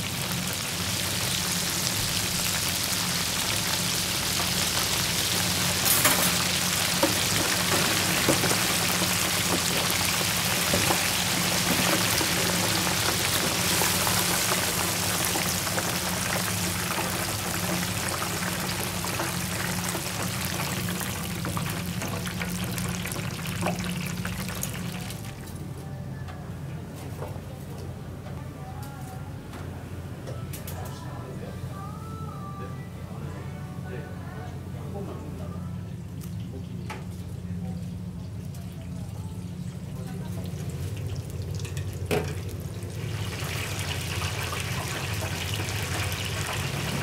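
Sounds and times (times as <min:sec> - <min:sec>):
shrimp sizzling in hot oil: 0:00.0 - 0:25.2, 0:42.9 - 0:47.0
low steady hum: 0:00.0 - 0:47.0.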